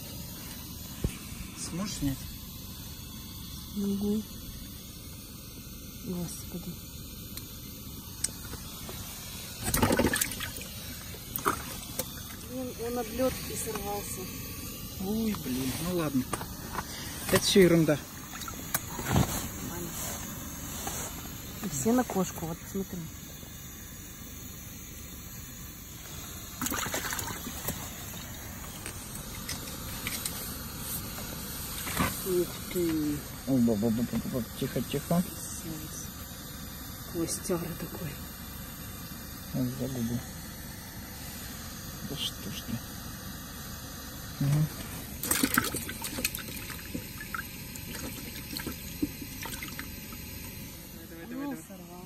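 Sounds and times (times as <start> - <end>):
background hiss: 0.0 - 52.0
fish flapping in a bucket: 9.6 - 12.4, 26.6 - 28.3, 45.2 - 49.9.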